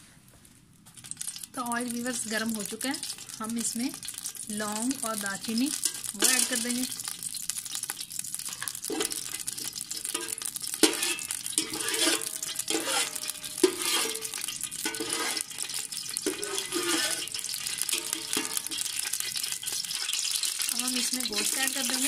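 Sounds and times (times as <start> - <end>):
spices sizzling in oil: 0.8 - 22.0
skimmer scraping pot bottom: 8.5 - 19.1.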